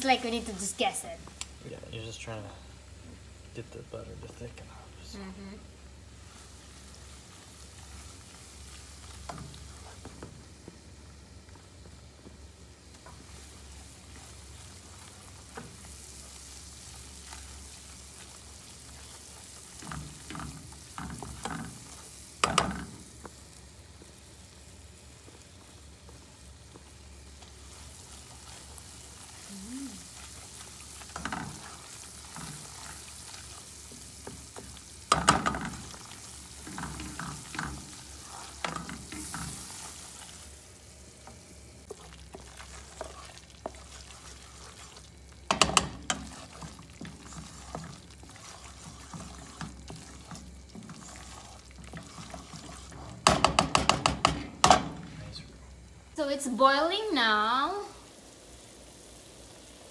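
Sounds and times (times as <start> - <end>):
butter sizzling in saucepan: 0.0 - 59.9
spoon scraping and knocking pan: 18.2 - 23.0, 30.2 - 40.3, 41.8 - 55.2.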